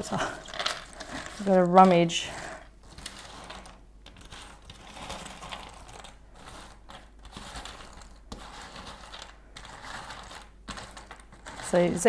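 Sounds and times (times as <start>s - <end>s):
puzzle pieces clattering: 0.0s - 2.2s.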